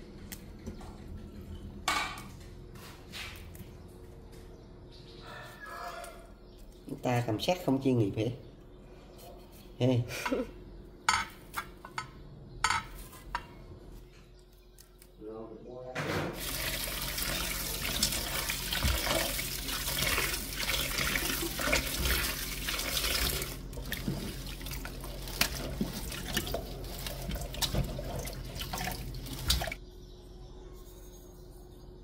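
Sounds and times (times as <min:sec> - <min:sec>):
tap water running into steel bowl: 0:16.4 - 0:29.8
water splashing: 0:16.4 - 0:29.8.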